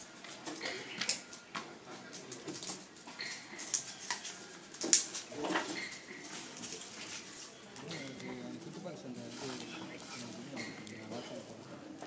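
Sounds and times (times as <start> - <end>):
paper tubes clicking and rustling: 2.0 - 8.4.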